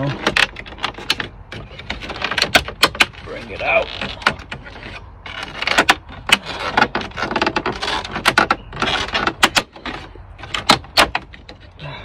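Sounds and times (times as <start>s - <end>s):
plastic scraping rubs: 0.0s - 11.9s.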